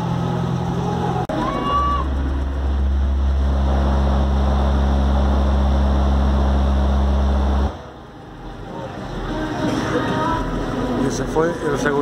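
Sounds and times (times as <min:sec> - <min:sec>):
very deep bass tone: 0:00.6 - 0:09.4.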